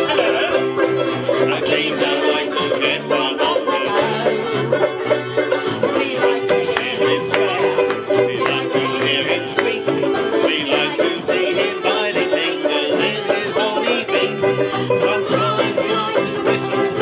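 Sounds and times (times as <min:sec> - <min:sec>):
accordion held chords: 0:00.0 - 0:17.0
plucked banjo notes: 0:00.0 - 0:17.0.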